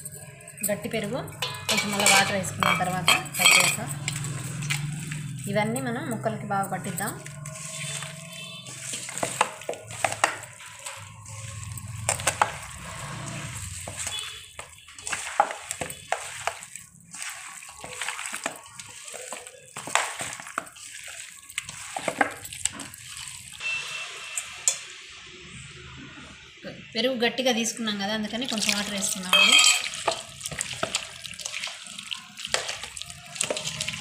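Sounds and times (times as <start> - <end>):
wet squelching and slapping: 3.9 - 23.7, 28.4 - 34.0.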